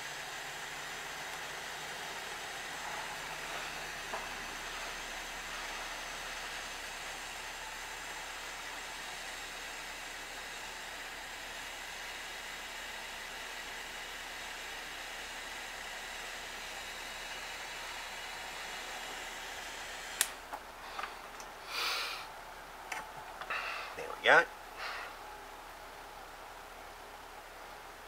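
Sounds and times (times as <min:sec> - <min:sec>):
soldering torch gas hiss: 0:21.6 - 0:22.3.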